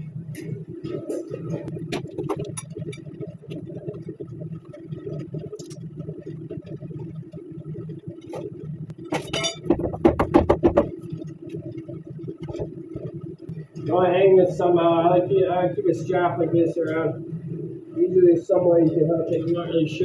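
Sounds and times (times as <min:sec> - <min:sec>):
steady low hum: 0:00.0 - 0:20.0
metal tools clinking: 0:09.2 - 0:09.7.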